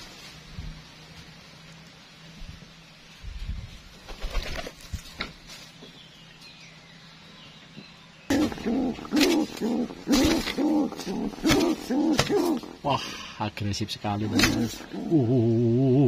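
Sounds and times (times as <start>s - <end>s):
wings slapping: 4.0s - 5.4s, 8.3s - 12.8s, 14.2s - 15.0s
pigeon cooing aggressively: 8.3s - 12.9s, 14.2s - 16.0s.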